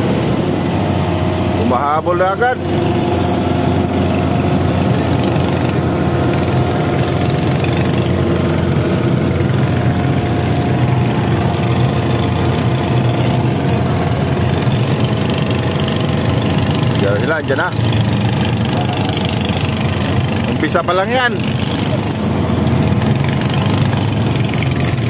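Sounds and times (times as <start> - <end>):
boat engine droning: 0.0 - 25.0.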